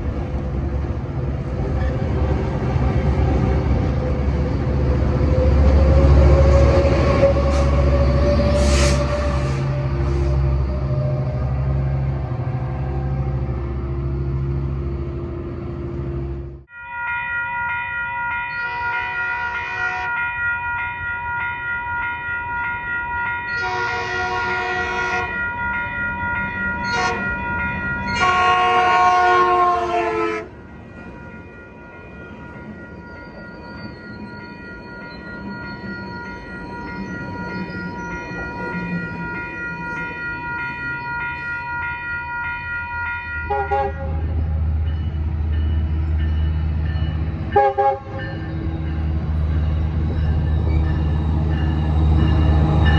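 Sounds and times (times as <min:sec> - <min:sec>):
train coaches rumbling past: 0:00.0 - 0:52.9
crossing bell ringing: 0:16.7 - 0:52.9
train horn blasts: 0:18.6 - 0:20.2, 0:23.5 - 0:25.4, 0:26.8 - 0:27.3, 0:28.1 - 0:30.5, 0:43.5 - 0:44.3, 0:47.6 - 0:48.2.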